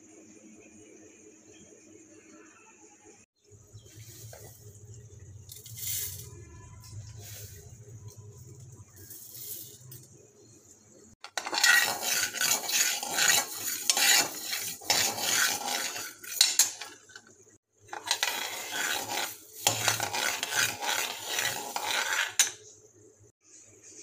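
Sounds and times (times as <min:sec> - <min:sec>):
ladle scraping seeds in a pan: 0:03.8 - 0:10.2, 0:11.2 - 0:22.6.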